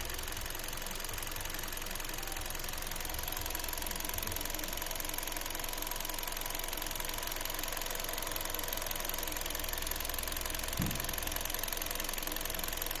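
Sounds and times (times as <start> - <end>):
car engine idling: 0.0 - 13.0
low thump: 10.7 - 11.2.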